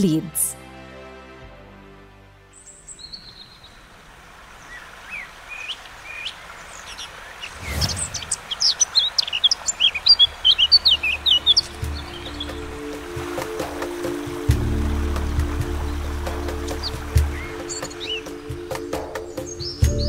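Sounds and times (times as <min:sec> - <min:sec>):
music: 0:00.0 - 0:02.9, 0:10.6 - 0:20.0
songbirds chirping: 0:02.0 - 0:20.0
faint outdoor hiss: 0:02.2 - 0:19.9.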